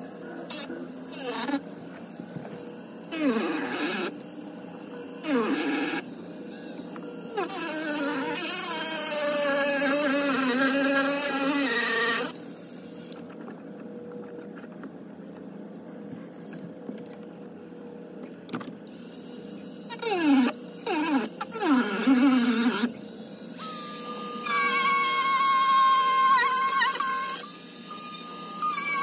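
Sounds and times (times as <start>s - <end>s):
rotary tool whining: 0.0s - 13.5s, 18.9s - 29.0s.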